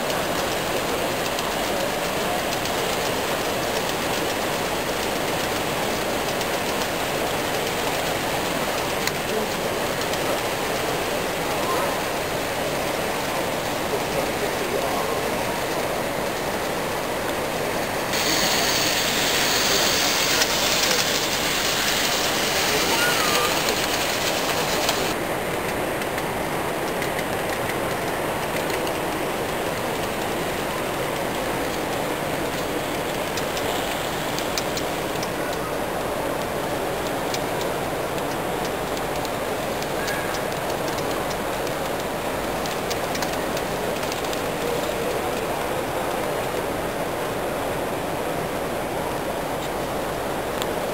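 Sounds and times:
crowd hubbub in a large hall: 0.0s - 50.9s
model trains running: 0.0s - 50.9s
exhibition hall crowd din: 18.1s - 25.2s.

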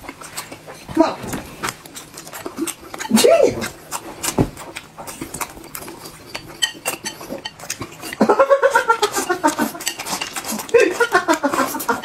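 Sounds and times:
wet chewing and slurping: 0.0s - 12.0s
chopsticks clicking against dish: 4.7s - 8.3s, 9.0s - 12.0s.

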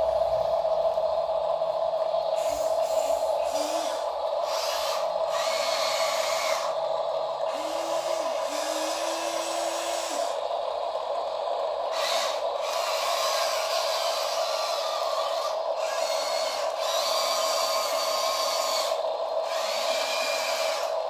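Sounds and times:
steady hum: 0.0s - 21.0s
small electric motors whirring: 2.4s - 6.9s, 7.5s - 10.4s, 11.9s - 21.0s.

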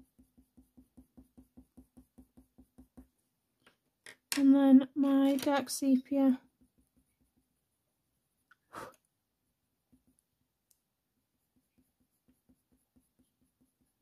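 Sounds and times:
pencil strokes on paper: 0.0s - 3.2s, 9.8s - 14.0s.

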